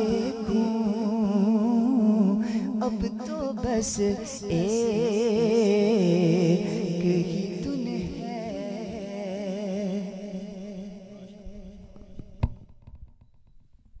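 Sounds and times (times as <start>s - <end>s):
man singing with vibrato: 0.0s - 12.4s
microphone knock: 11.8s - 13.9s.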